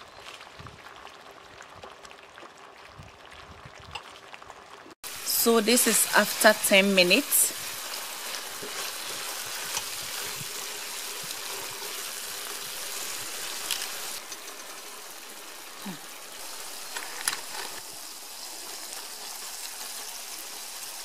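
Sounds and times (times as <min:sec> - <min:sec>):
sauce sizzling in a frying pan: 0:04.5 - 0:21.0.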